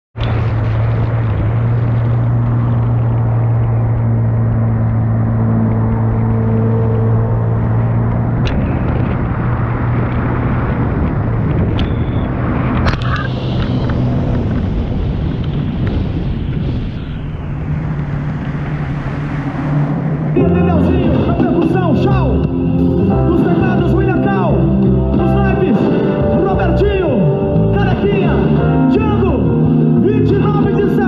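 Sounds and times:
jet ski engine droning: 0.2 - 30.8.

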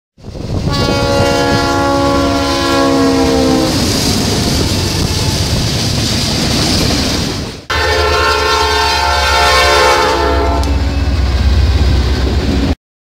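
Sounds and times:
locomotive air horn: 0.6 - 3.9, 7.7 - 11.3.

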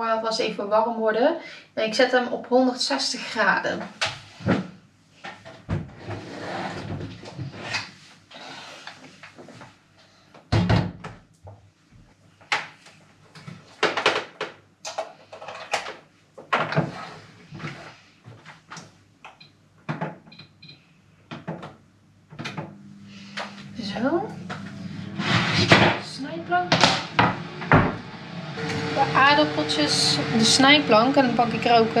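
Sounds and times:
rushing noise: 22.8 - 32.0
cupboard doors and drawers closing: 24.5 - 26.1, 26.7 - 28.9.

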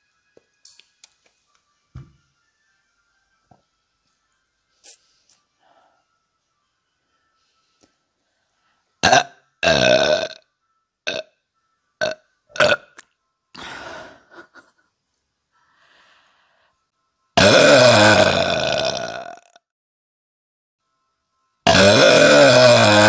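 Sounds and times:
woman burping: 9.0 - 10.4, 11.1 - 11.3, 12.0 - 13.0, 17.4 - 19.6, 21.7 - 23.0.

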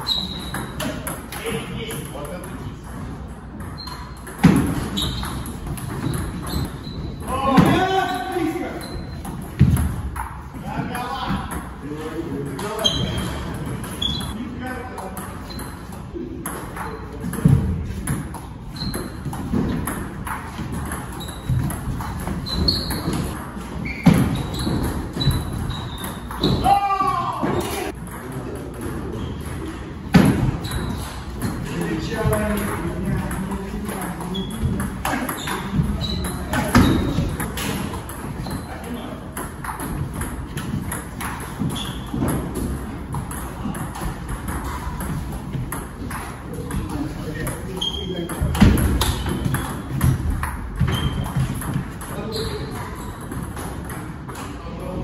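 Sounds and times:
table tennis ball hits: 0.2 - 10.4, 16.4 - 54.6
ball bouncing on table: 3.6 - 6.7, 7.4 - 10.4, 27.4 - 38.7, 39.3 - 54.5.

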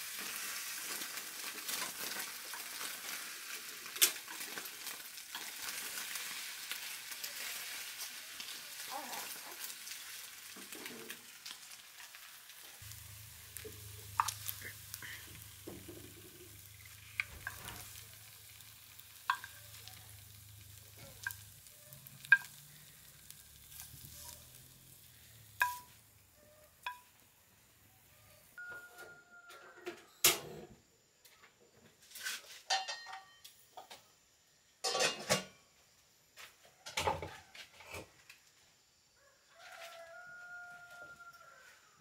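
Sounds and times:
food sizzling in a frying pan: 0.0 - 28.7
cookware clattering: 19.2 - 20.2, 32.7 - 33.4, 34.8 - 35.6
metal utensil clinking on pan: 19.2 - 22.6, 25.6 - 26.0, 32.7 - 33.4, 34.8 - 35.6.

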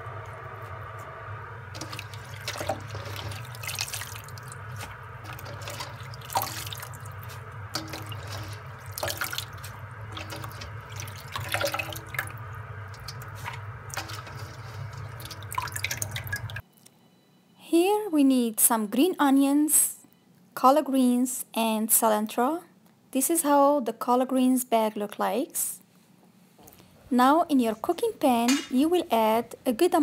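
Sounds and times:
steady low hum: 0.0 - 17.6
water splashing and dripping: 1.7 - 16.6.

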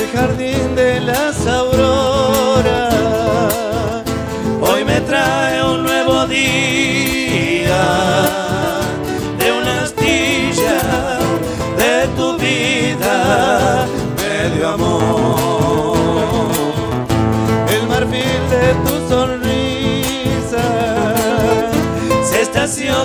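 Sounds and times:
acoustic guitars strummed and picked: 0.0 - 23.0
voices singing long notes: 4.6 - 16.8.

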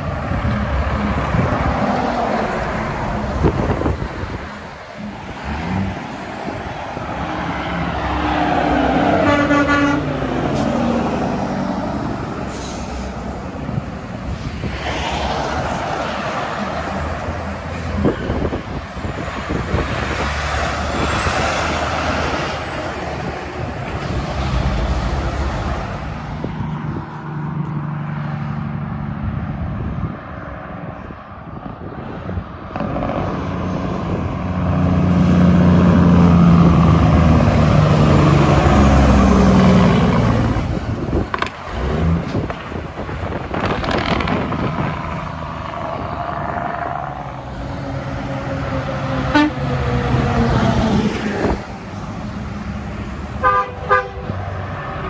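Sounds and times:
heavy trucks passing: 0.0 - 55.0
horn tooting: 9.1 - 10.6, 49.2 - 49.8, 53.4 - 54.4.

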